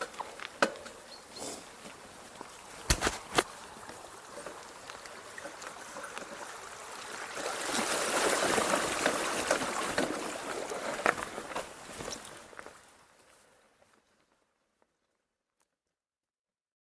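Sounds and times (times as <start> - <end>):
bike tyres splashing through water: 0.0 - 13.2.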